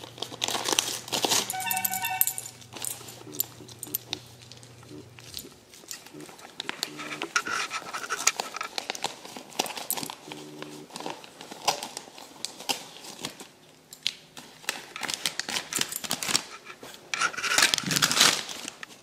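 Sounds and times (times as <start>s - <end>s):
wrapping paper crinkling and tearing: 0.0s - 1.6s, 2.7s - 13.7s, 14.3s - 19.0s.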